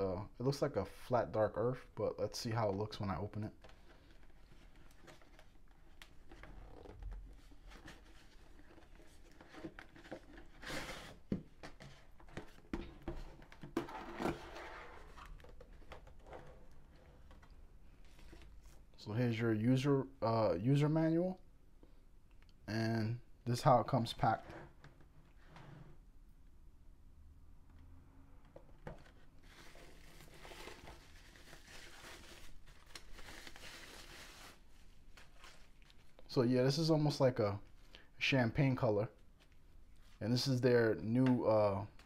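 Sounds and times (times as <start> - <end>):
bubble wrap crinkling: 29.5 - 36.2.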